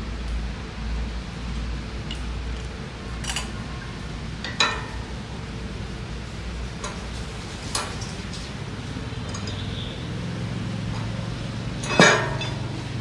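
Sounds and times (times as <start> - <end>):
steady low hum: 0.0 - 13.0
wrench clinking on metal: 11.8 - 12.7.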